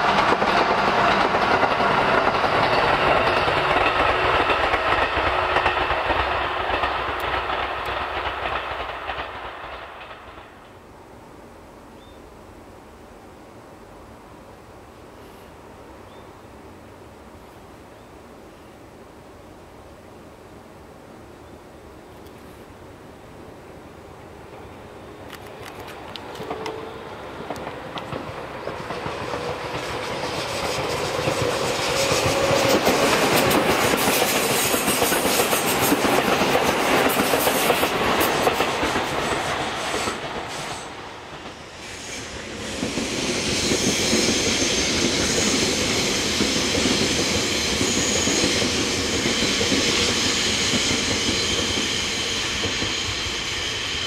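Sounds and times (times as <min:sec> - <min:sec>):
train wheels clickety-clack: 0:00.0 - 0:10.8, 0:24.4 - 0:54.0
train wheels rumbling: 0:00.0 - 0:10.9, 0:24.2 - 0:54.0
electric train high whine: 0:00.0 - 0:12.0, 0:23.8 - 0:54.0.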